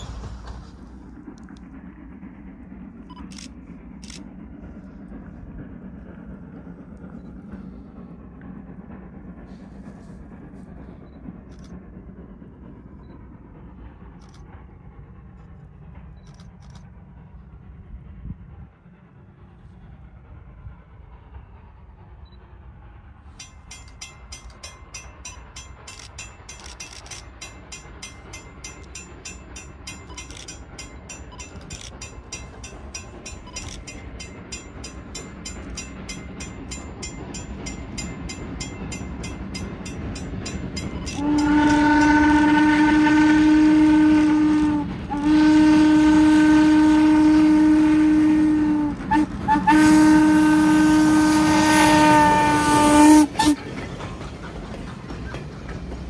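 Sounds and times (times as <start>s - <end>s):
steam locomotive exhaust beat: 0.0s - 56.0s
steam whistle blasts: 41.1s - 53.6s.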